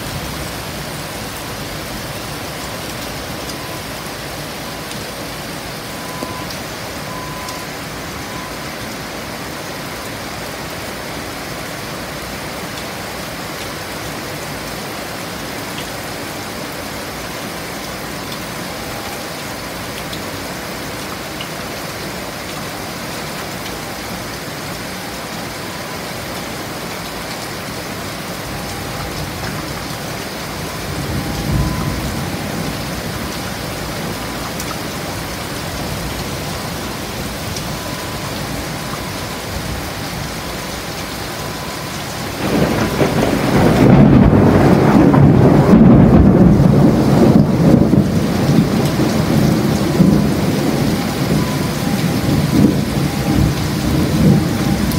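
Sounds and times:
heavy rain falling: 0:00.0 - 0:54.9
thunder rumbling: 0:28.6 - 0:34.4, 0:41.6 - 0:54.9.

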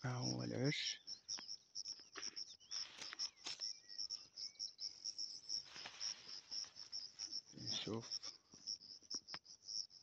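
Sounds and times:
crickets chirping: 0:00.0 - 0:10.0
rustling leaves and snapping twigs: 0:01.3 - 0:03.8, 0:05.6 - 0:08.3.

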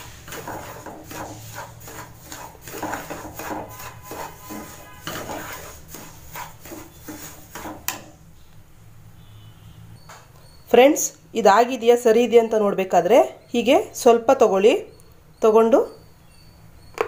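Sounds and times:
wooden spatula scraping pan: 0:00.0 - 0:08.2.

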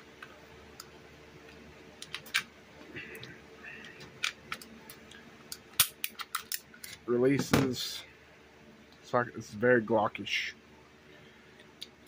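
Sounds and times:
pistol parts clicking: 0:05.5 - 0:06.6.

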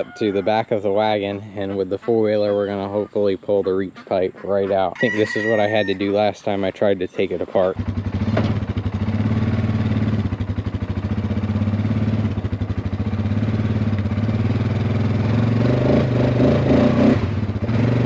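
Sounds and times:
atv engine idling: 0:05.7 - 0:16.3.

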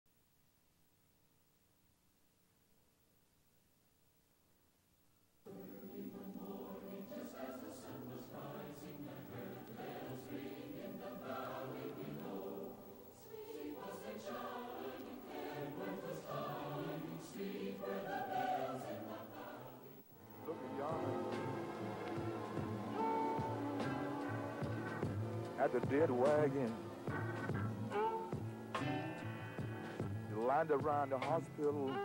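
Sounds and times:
choir singing: 0:05.5 - 0:27.0.

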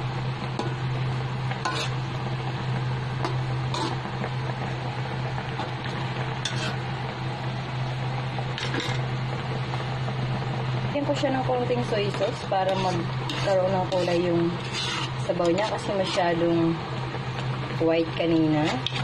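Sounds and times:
low hum: 0:00.0 - 0:19.0
spatula scraping in a wok: 0:01.5 - 0:02.2, 0:03.2 - 0:04.1, 0:06.3 - 0:06.9, 0:08.6 - 0:09.1, 0:11.3 - 0:16.7, 0:18.3 - 0:19.0.

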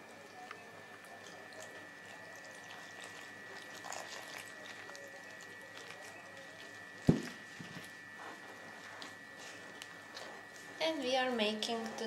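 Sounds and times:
water trickling onto flour: 0:00.0 - 0:12.0
steady high whine: 0:06.6 - 0:12.0.

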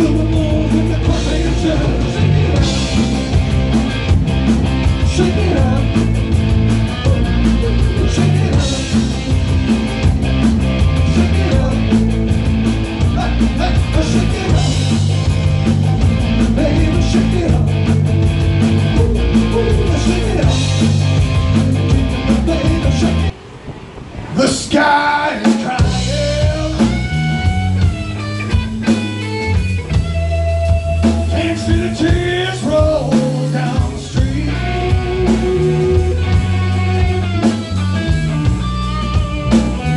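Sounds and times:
male lead vocal: 0:00.0 - 0:03.6, 0:04.9 - 0:09.8, 0:10.8 - 0:12.4, 0:13.0 - 0:15.4, 0:16.2 - 0:18.1, 0:18.7 - 0:23.4, 0:24.3 - 0:27.2, 0:31.1 - 0:37.2
bass guitar: 0:00.0 - 0:39.9
drums: 0:00.0 - 0:39.9
electric guitar: 0:00.0 - 0:39.9.

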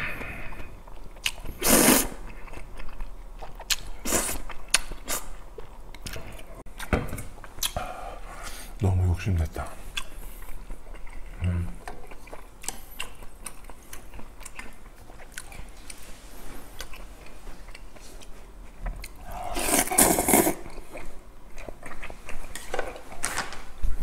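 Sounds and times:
chewing: 0:00.2 - 0:08.0, 0:09.9 - 0:23.2
slurping noodles: 0:01.5 - 0:02.2, 0:19.2 - 0:20.7.

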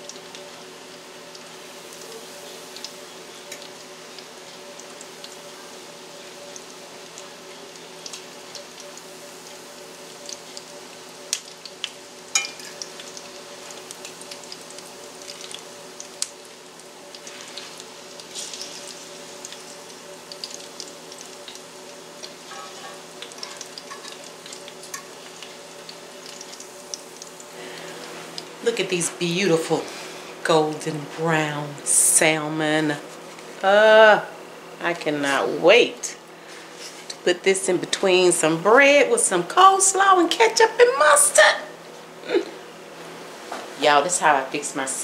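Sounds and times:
patties sizzling in oil: 0:00.0 - 0:45.0
fork scraping skillet: 0:22.4 - 0:24.2.

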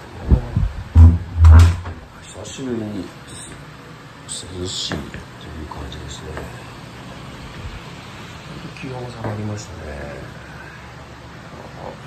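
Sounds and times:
dull low thumps: 0:00.3 - 0:02.1.

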